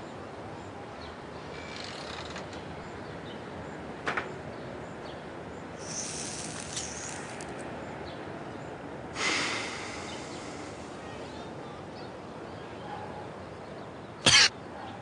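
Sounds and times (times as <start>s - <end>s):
dog breathy blow: 9.2s - 10.9s.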